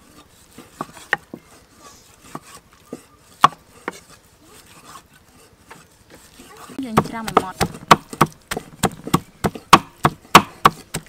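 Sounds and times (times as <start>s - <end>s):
cleaver knocking on wooden block: 6.9s - 11.0s.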